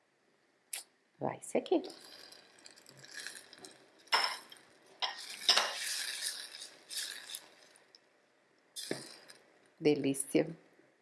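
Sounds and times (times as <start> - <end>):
spatula scraping saucepan: 5.0 - 7.4.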